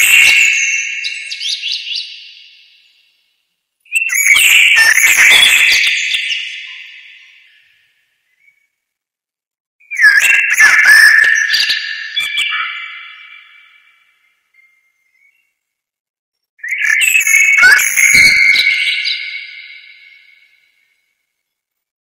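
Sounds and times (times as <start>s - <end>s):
bright whistling chirp tones: 16.6s - 20.6s.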